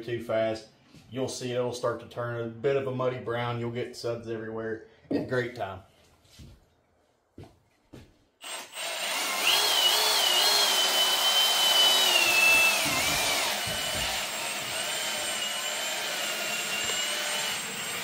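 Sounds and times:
cordless drill whine: 8.4 - 18.0.

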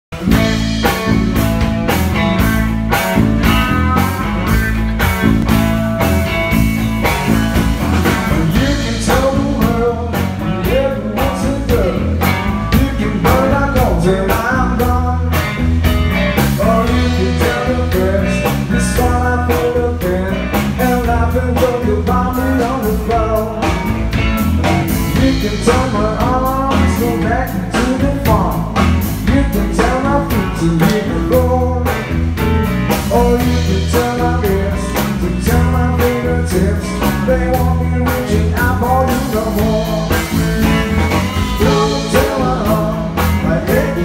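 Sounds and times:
band playing dance beat: 0.1 - 44.0
person singing: 8.0 - 15.4, 16.5 - 23.9, 25.0 - 32.1, 32.9 - 44.0.

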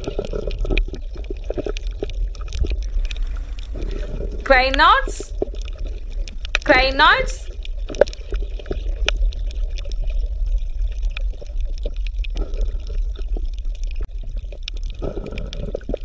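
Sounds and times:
underwater low rumble: 0.0 - 4.5
faint underwater clicks: 0.2 - 6.7.

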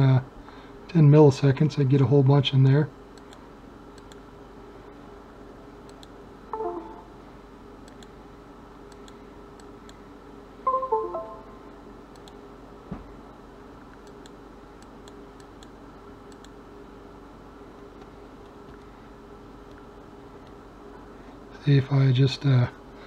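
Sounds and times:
steady low hum: 0.0 - 23.0
mouse clicks: 14.0 - 16.6.

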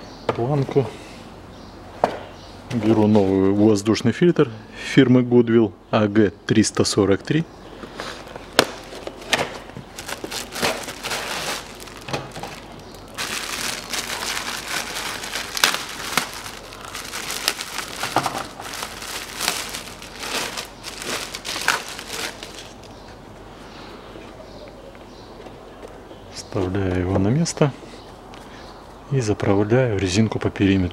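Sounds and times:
cardboard and plastic wrapping crinkling: 8.0 - 23.0.

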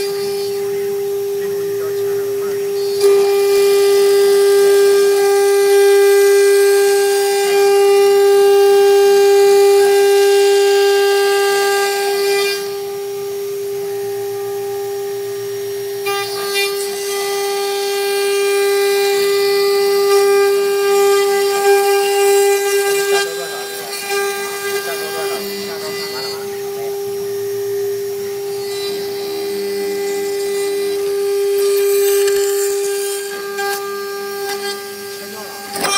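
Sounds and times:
hissing cutting noise: 0.0 - 5.2, 19.2 - 35.9
router spindle whine: 0.0 - 35.9.

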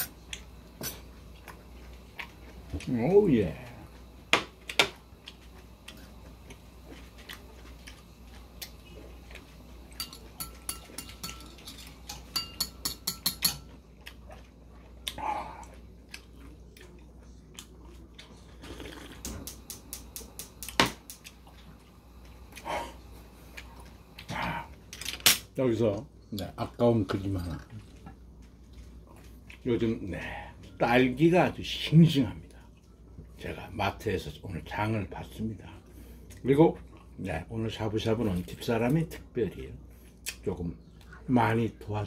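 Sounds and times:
chewing: 0.2 - 2.9, 3.9 - 12.0, 13.6 - 19.5, 21.2 - 24.3, 27.4 - 29.7, 35.8 - 37.2.

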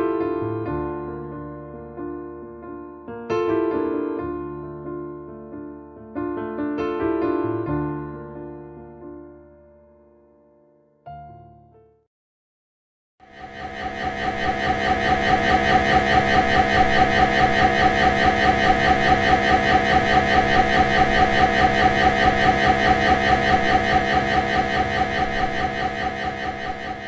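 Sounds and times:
mri scanner pulsing buzz: 13.2 - 27.0.

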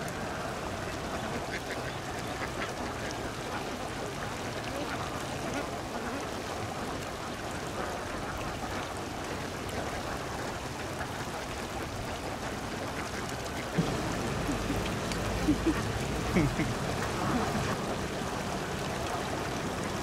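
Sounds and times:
ducks splashing in water: 0.0 - 20.0.

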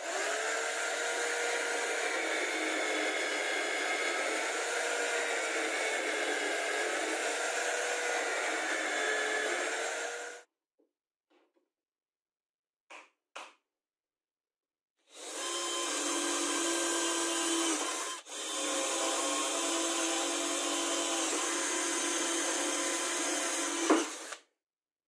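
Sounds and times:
cordless drill drilling through wood: 0.0 - 10.5, 15.1 - 24.5.

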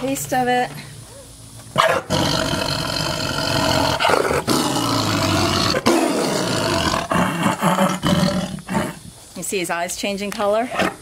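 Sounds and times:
tiger roaring and growling: 1.8 - 9.1.

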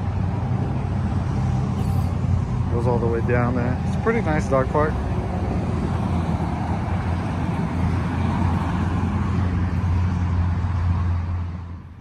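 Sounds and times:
road noise: 0.0 - 12.0
vehicle engine hum: 0.0 - 12.0.

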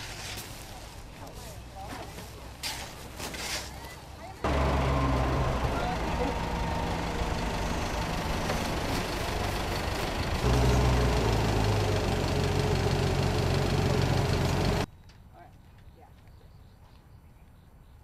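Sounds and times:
vehicle engine running: 4.2 - 14.9.

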